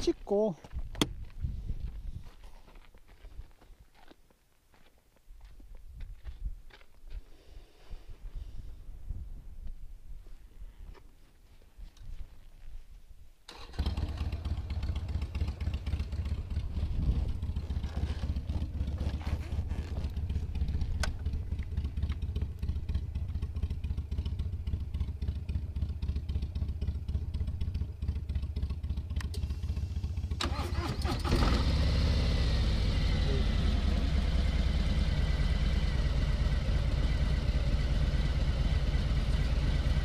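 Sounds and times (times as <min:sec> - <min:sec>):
motorcycle engine running: 0:13.7 - 0:40.0.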